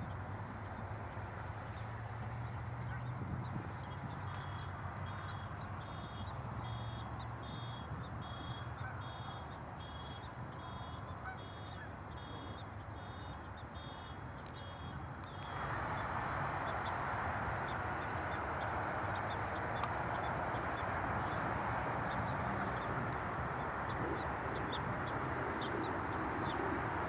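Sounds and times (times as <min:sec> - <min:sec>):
prairie dog alarm calls: 0:04.4 - 0:15.6.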